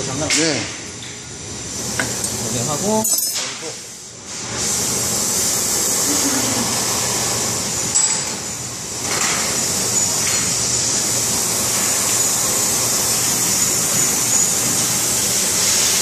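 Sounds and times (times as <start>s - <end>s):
gas torch flame hissing: 3.6s - 16.0s.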